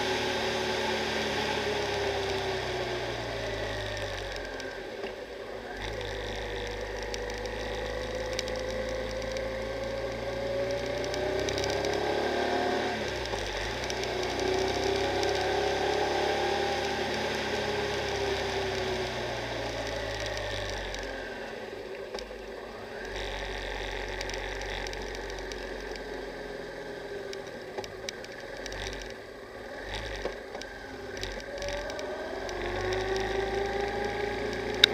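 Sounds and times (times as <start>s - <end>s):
motorcycle engine running: 0.0s - 34.9s
sharp rattling ticks: 3.7s - 4.8s, 5.8s - 12.2s, 13.1s - 21.2s, 23.0s - 26.3s, 27.2s - 29.2s, 29.8s - 34.9s.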